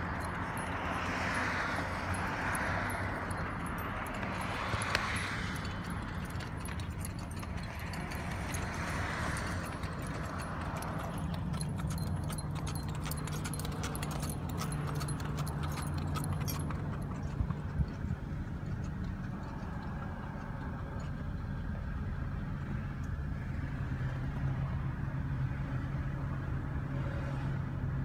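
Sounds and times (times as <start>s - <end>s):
tack jingling: 0.0s - 21.1s
horse hooves clopping on asphalt: 0.0s - 24.4s
passing traffic: 0.0s - 28.0s.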